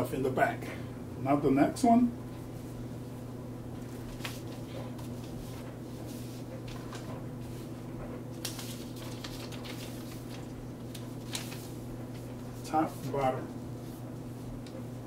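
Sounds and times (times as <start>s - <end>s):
steady low hum: 0.0s - 15.0s
fabric and paper rustling: 3.8s - 14.9s.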